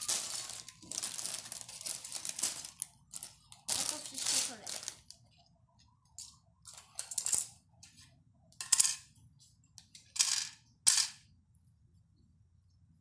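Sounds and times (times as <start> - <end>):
plastic bricks clattering on wood floor: 0.0 - 5.2.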